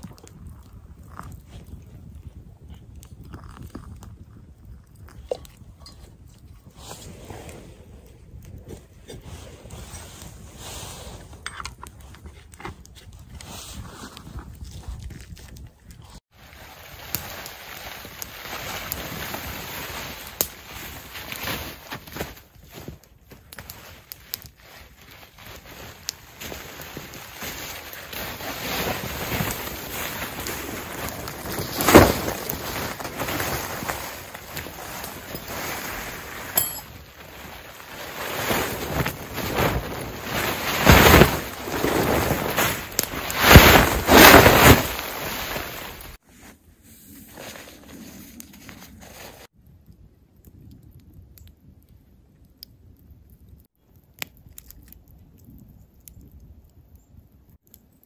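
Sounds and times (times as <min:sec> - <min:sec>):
fabric rustling and flapping: 0:24.6 - 0:46.2.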